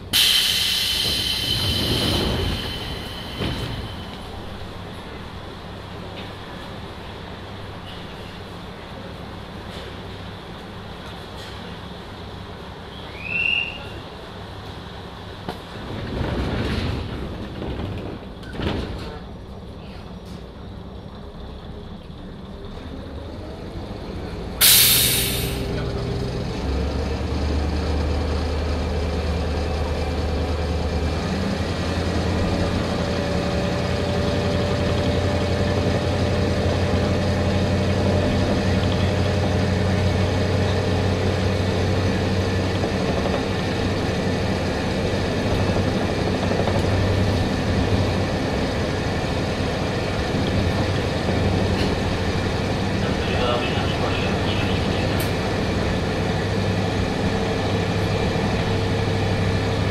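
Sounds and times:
diesel engine low drone: 0:00.0 - 0:59.9
compressed air blast: 0:00.2 - 0:03.4, 0:24.6 - 0:25.7.

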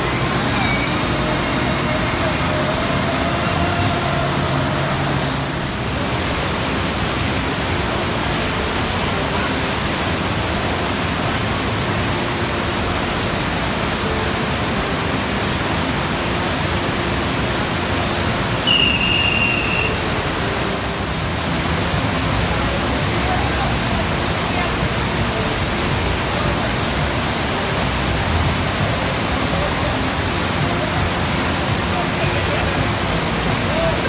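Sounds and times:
brief high tone: 0:00.0 - 0:04.6, 0:18.6 - 0:20.1
water rushing: 0:00.0 - 0:34.0.

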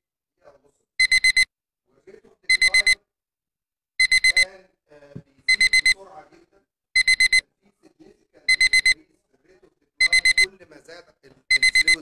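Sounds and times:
electronic alarm beeping: 0:01.0 - 0:01.5, 0:02.5 - 0:03.0, 0:04.0 - 0:04.5, 0:05.5 - 0:06.0, 0:07.0 - 0:07.4, 0:08.5 - 0:09.0, 0:10.0 - 0:10.5, 0:11.5 - 0:12.0.

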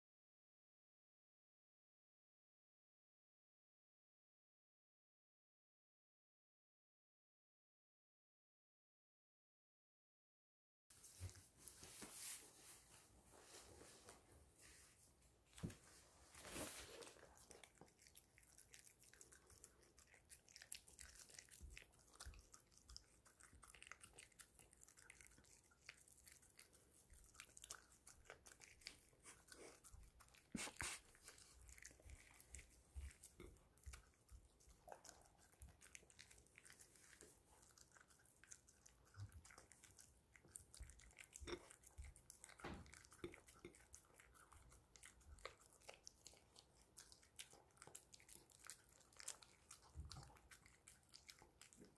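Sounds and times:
dog chewing and licking: 0:15.5 - 0:51.9.

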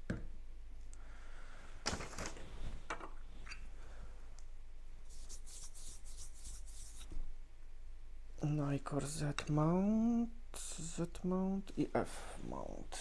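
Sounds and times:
hands rubbing camera gear: 0:05.1 - 0:07.2.

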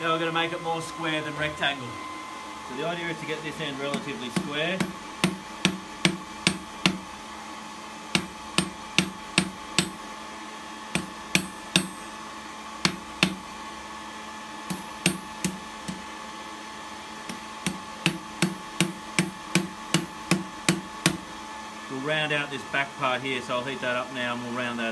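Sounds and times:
hammer striking hot steel on anvil: 0:03.9 - 0:07.1, 0:08.1 - 0:10.0, 0:10.9 - 0:12.2, 0:12.8 - 0:13.4, 0:14.6 - 0:16.1, 0:17.3 - 0:21.2.

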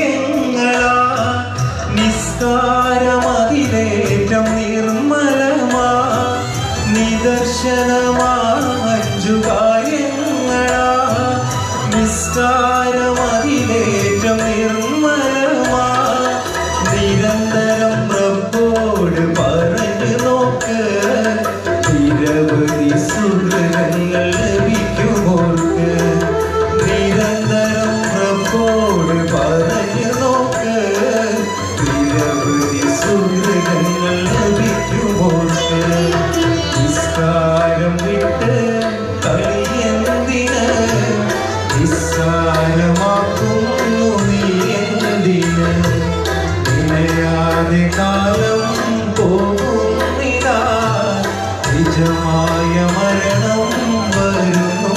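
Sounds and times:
backing music with tabla: 0:00.0 - 0:54.9
man singing into a microphone: 0:00.0 - 0:54.9.

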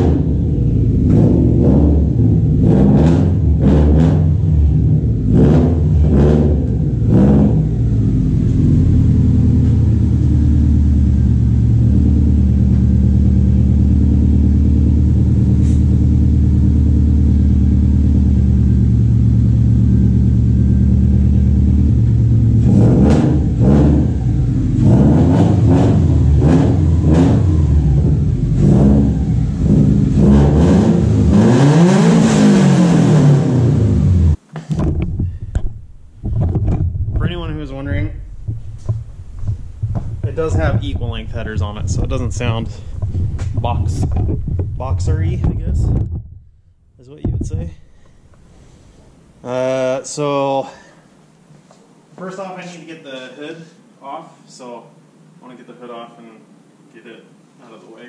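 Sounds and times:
car engine revving and idling: 0:00.0 - 0:34.4, 0:37.2 - 0:46.1.

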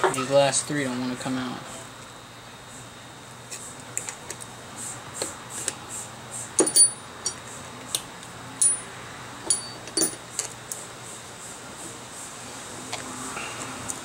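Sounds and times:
metallic clicks and clinks: 0:06.6 - 0:07.4, 0:08.6 - 0:10.5.

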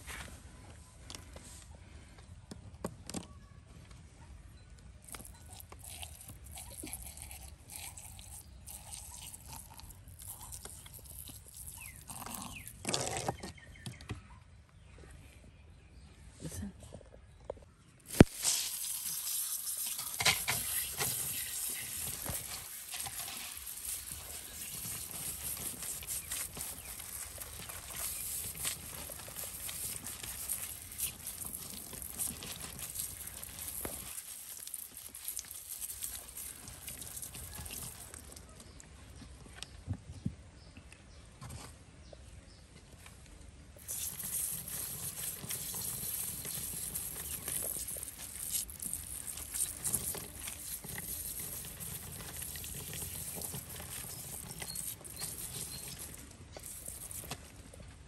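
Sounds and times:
outdoor background noise: 0:00.0 - 0:58.0
hands handling soil and pot: 0:05.0 - 0:14.0, 0:17.9 - 0:39.8, 0:42.6 - 0:58.0.

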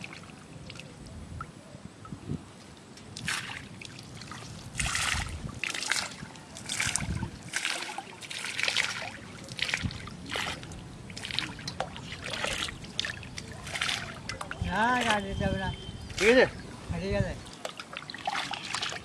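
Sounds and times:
plate splashing in water: 0:17.6 - 0:19.0.

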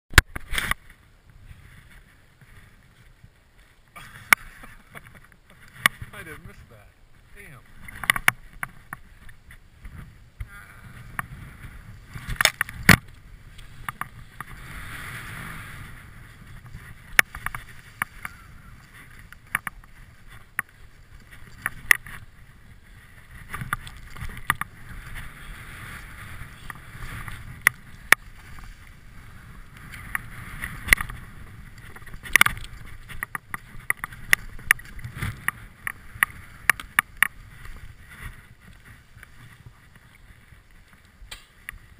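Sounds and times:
sharp clicks and knocks: 0:07.9 - 0:09.0, 0:41.3 - 0:41.6
skis swishing through snow: 0:11.0 - 0:41.9.

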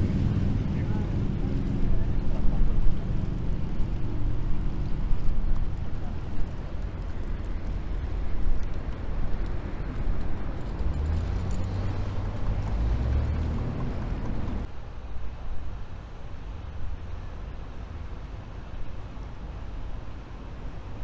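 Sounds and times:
boat engine rumbling: 0:00.0 - 0:08.2, 0:09.5 - 0:14.7
wind noise: 0:00.0 - 0:21.0.

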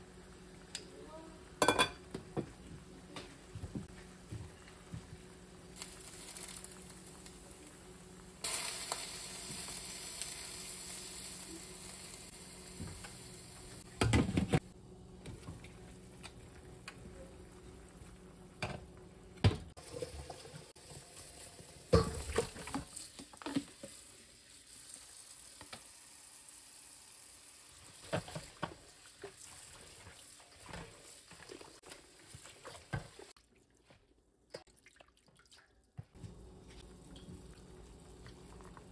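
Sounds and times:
chicken sizzling in a wok: 0:04.8 - 0:13.9, 0:19.7 - 0:33.4.

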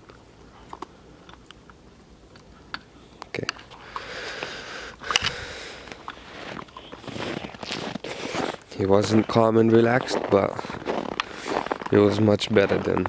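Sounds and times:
clothing and camera handling rustle: 0:06.0 - 0:13.0.

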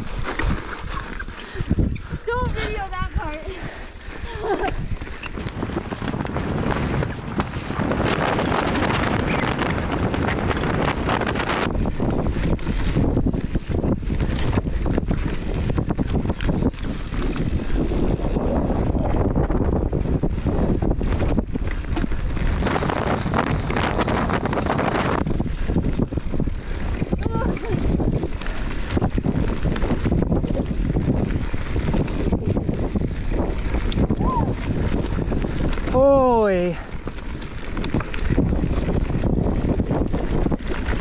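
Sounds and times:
wind rushing over microphone: 0:00.0 - 0:41.0
bike rattling and knocking: 0:04.5 - 0:41.0
tyres rolling over dirt and rocks: 0:05.0 - 0:11.7, 0:22.6 - 0:25.2.

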